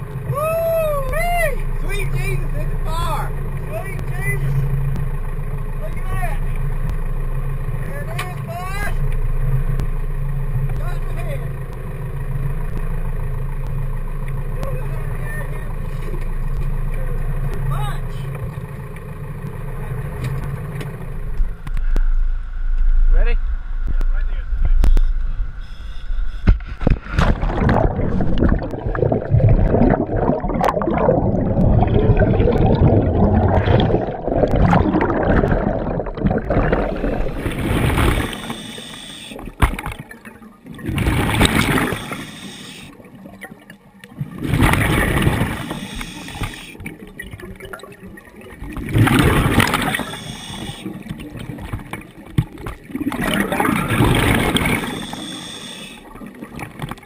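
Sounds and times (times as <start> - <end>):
water noise: 0.0 - 57.0
wind: 0.0 - 57.0
regulator bubbles gurgling underwater: 26.4 - 57.0.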